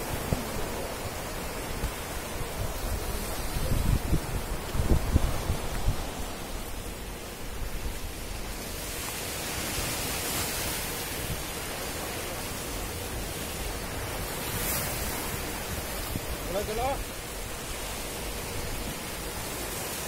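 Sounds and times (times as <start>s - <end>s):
waves breaking over boulders: 0.0s - 20.0s.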